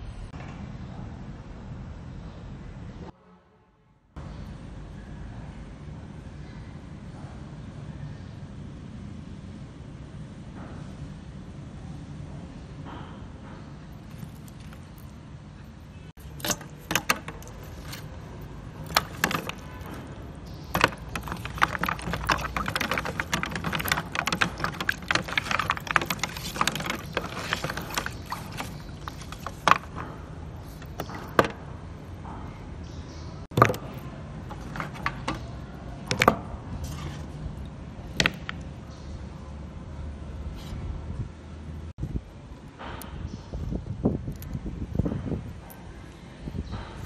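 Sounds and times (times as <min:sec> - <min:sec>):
clam shells clacking together: 0:16.2 - 0:30.0
water sloshing in basin: 0:16.2 - 0:31.6.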